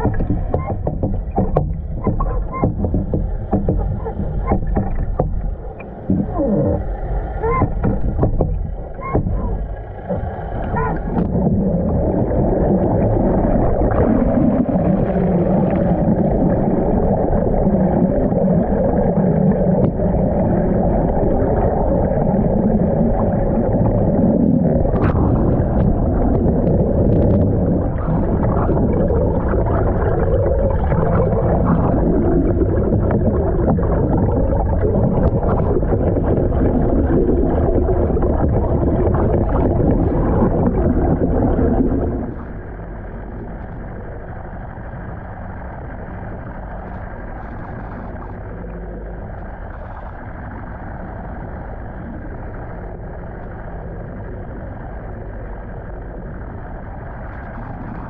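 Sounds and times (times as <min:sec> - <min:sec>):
bubbles crackling: 0:00.0 - 0:44.6
underwater rushing water: 0:00.0 - 0:58.0.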